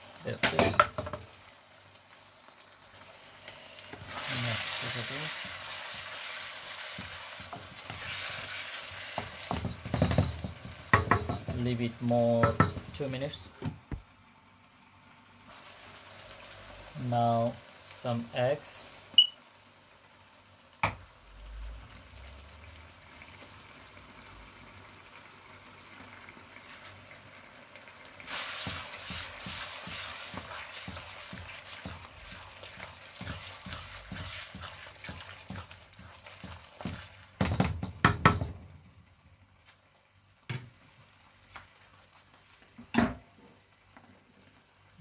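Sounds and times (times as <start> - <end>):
sauce simmering and sizzling: 0.0 - 45.0
wooden spatula stirring and scraping: 2.9 - 13.0, 28.3 - 38.4
spatula knocking against wok: 9.3 - 11.6, 12.4 - 13.0, 36.4 - 38.6.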